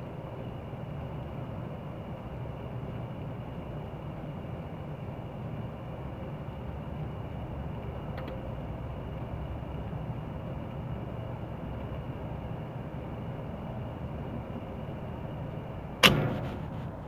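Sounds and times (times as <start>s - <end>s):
low background rumble: 0.0s - 17.0s
sharp loud knock: 16.0s - 17.0s.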